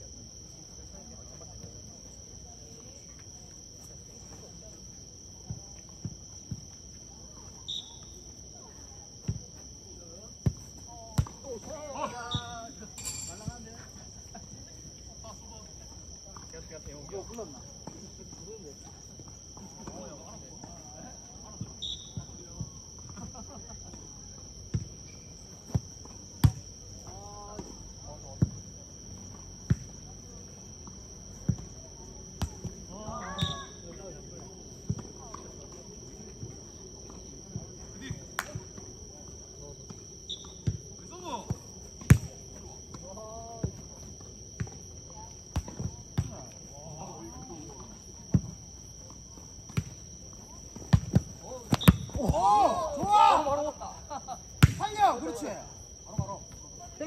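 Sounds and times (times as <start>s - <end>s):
crickets trilling: 0.0s - 57.0s
ball thumps: 49.7s - 50.0s.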